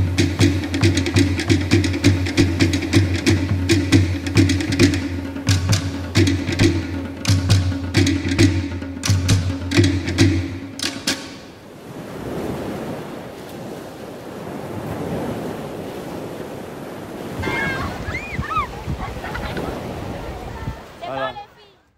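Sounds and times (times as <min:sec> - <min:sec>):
drumming: 0:00.0 - 0:11.6
surf washing on beach: 0:00.0 - 0:21.8
wind buffeting microphone: 0:11.6 - 0:21.0.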